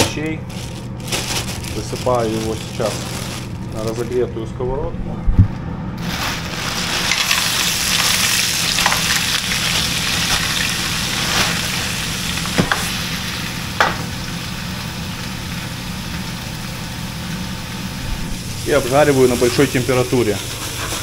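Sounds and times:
vegetables sizzling in frying pan: 6.0s - 21.0s.

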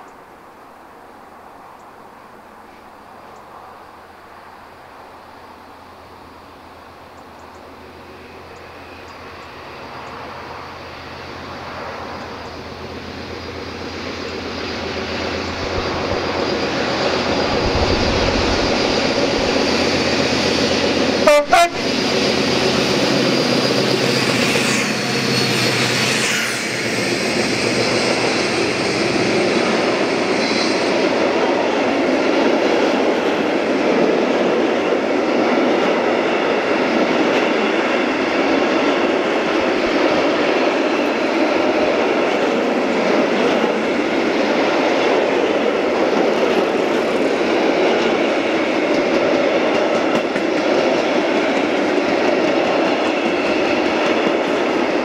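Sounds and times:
diesel locomotive engine: 0.0s - 55.0s
wheel and rail noise: 0.0s - 55.0s
short train horn blasts: 21.2s - 22.0s.

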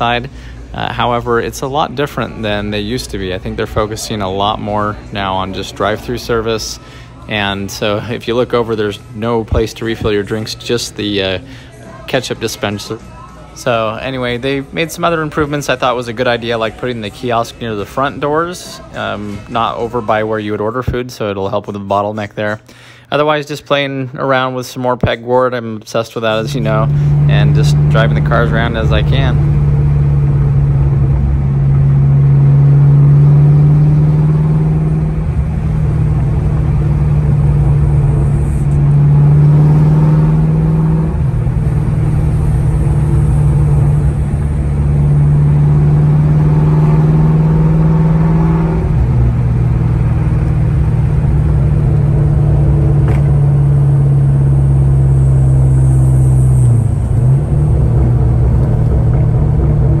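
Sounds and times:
car engine drone inside cabin: 0.0s - 20.1s, 26.2s - 60.0s.

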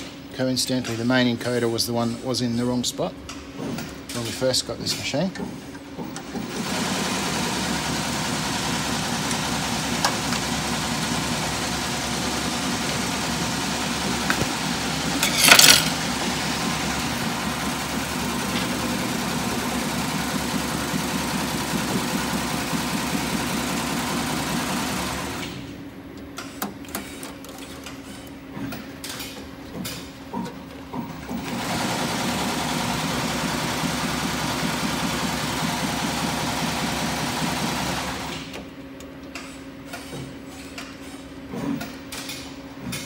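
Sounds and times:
embroidery machine running: 6.4s - 25.7s, 31.2s - 38.6s.

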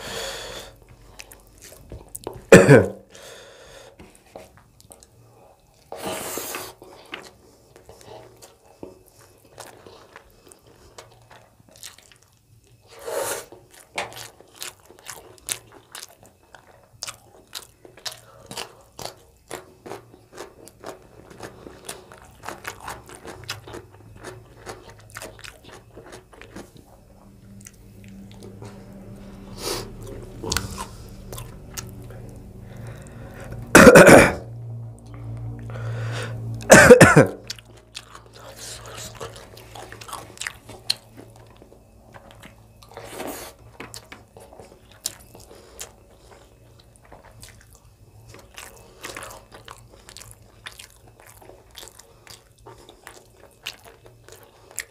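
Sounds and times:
chewing and lip-smacking: 0.8s - 2.5s, 4.3s - 6.0s, 6.7s - 33.7s, 37.4s - 54.9s
person coughing: 2.4s - 3.1s, 33.7s - 34.5s, 36.7s - 37.5s.

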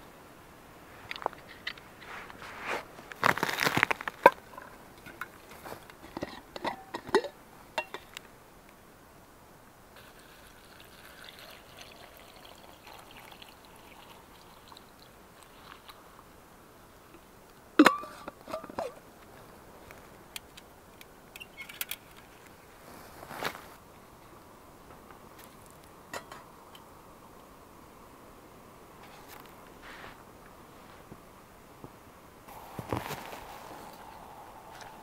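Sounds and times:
water trickling into metal cup: 10.0s - 15.5s.

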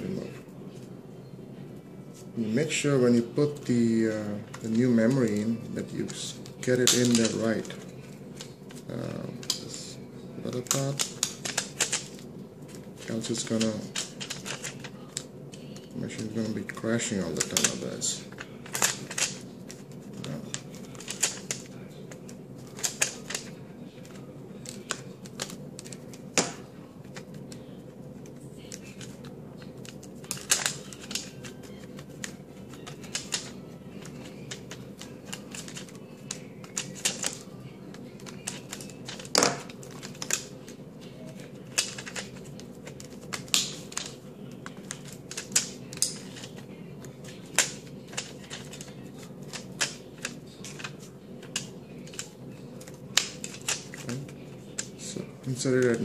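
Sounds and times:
steady low hum: 0.0s - 56.0s
sharp plastic snaps: 43.3s - 44.2s.

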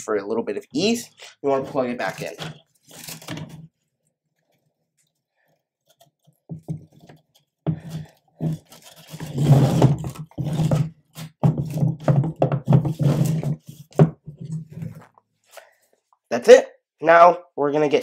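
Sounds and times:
hands handling cables and plastic: 1.6s - 9.4s.

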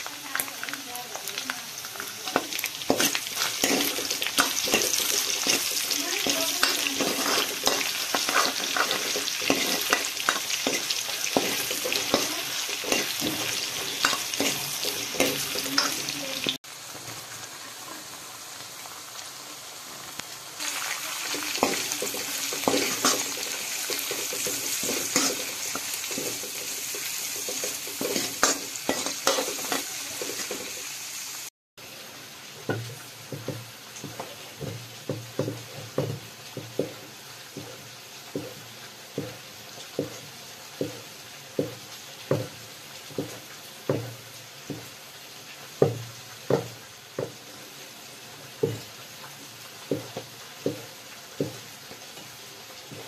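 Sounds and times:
food sizzling in hot oil: 0.0s - 53.0s
metal ladle scraping wok: 2.4s - 16.3s, 21.3s - 30.8s.

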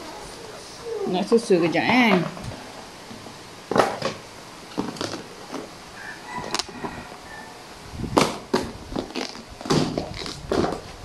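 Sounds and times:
plastic lids crackling and clicking: 3.7s - 5.7s, 6.4s - 6.8s.

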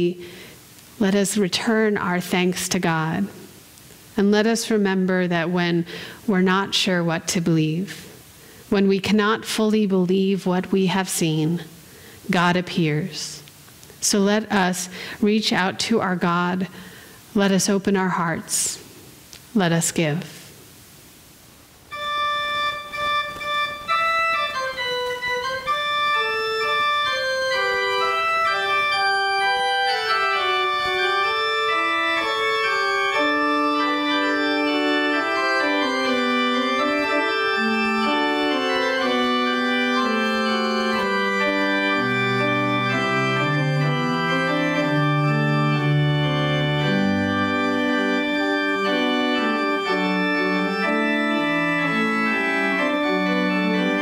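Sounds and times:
deep organ pedal bass notes: 21.9s - 54.0s
pipe organ playing: 21.9s - 54.0s.

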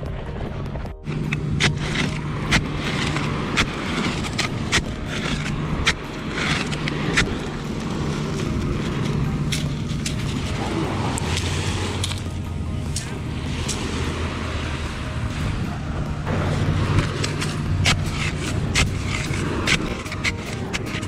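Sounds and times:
plastic rod scraping in sand: 1.0s - 12.3s, 16.3s - 21.0s.

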